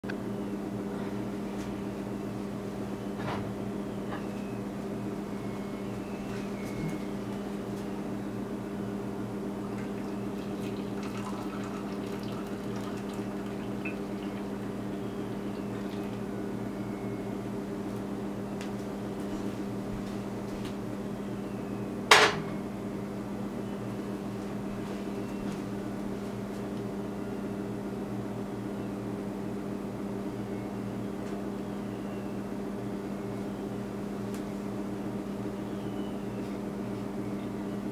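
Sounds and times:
steady low hum: 0:00.0 - 0:37.9
tea pouring into glass mug: 0:09.7 - 0:16.2.

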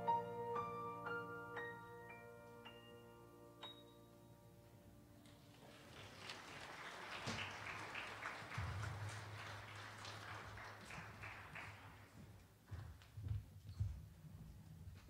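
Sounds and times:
footsteps on hard stage floor: 0:11.9 - 0:15.0.

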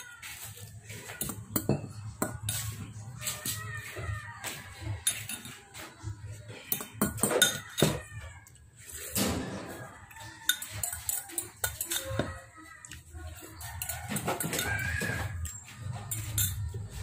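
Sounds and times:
metal spoon scraping ceramic bowl: 0:05.0 - 0:05.8, 0:06.5 - 0:08.0, 0:10.1 - 0:12.4, 0:13.5 - 0:17.0.

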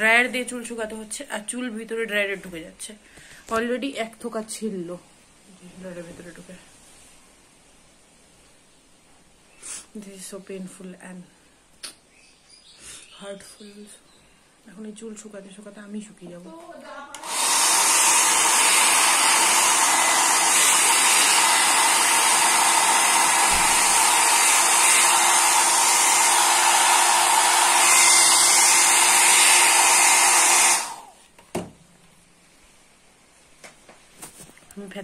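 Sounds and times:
hair dryer blowing: 0:17.2 - 0:31.2.

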